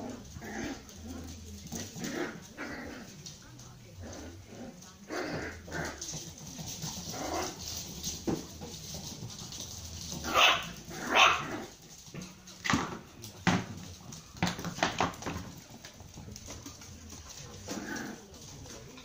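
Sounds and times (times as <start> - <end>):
puppies barking and yipping: 5.2 - 12.1.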